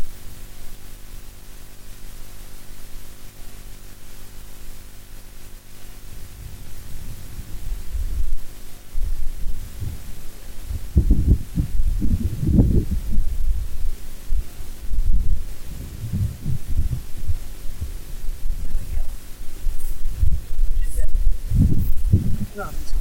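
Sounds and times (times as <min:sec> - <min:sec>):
microphone hiss and hum: 0:00.0 - 0:23.0
wind buffeting microphone: 0:06.1 - 0:23.0.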